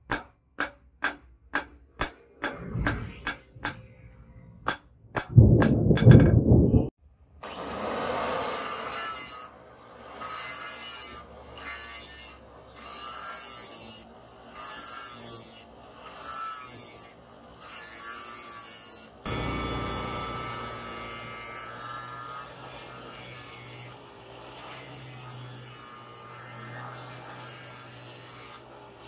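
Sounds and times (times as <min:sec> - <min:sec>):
angle grinder grinding steel: 0:07.4 - 0:29.0.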